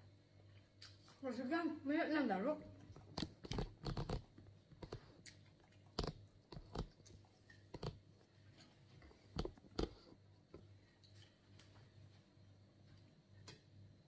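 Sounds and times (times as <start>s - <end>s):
faint low hum: 0.0s - 14.0s
chewing and biting food: 2.8s - 10.1s.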